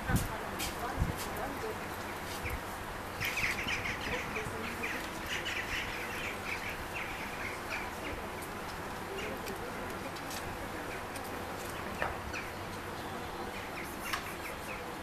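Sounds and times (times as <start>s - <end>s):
small birds chirping: 0.8s - 15.0s.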